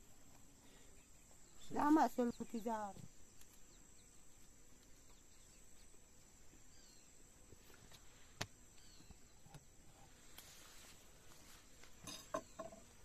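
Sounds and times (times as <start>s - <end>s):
faint bird chirps: 6.6s - 7.2s, 8.7s - 10.1s.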